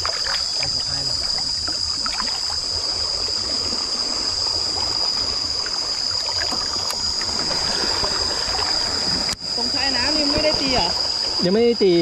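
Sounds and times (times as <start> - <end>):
light water splashes: 0.0 - 11.9
insects droning: 0.0 - 12.0
stream water trickling: 0.0 - 12.0.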